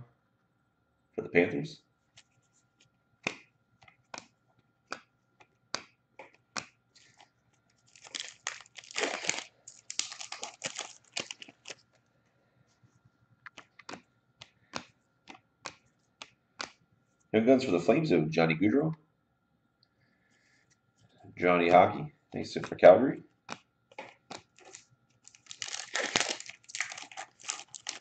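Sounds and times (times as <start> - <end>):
trading cards snapping: 4.9 - 7.2, 13.5 - 16.8, 23.5 - 28.0
foil card pack tearing: 7.9 - 11.8, 24.6 - 28.0.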